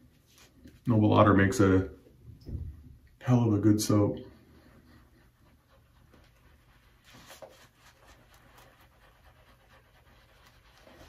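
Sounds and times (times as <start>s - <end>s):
shaving brush swishing: 4.5s - 11.0s.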